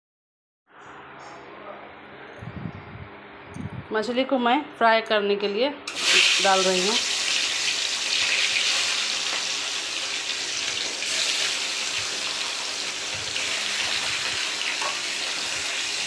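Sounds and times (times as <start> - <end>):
fish sizzling in hot oil: 5.9 - 16.0.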